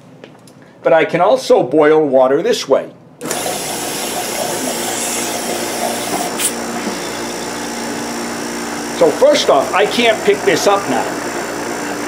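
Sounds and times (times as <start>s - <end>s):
vacuum pump running: 3.2s - 12.0s.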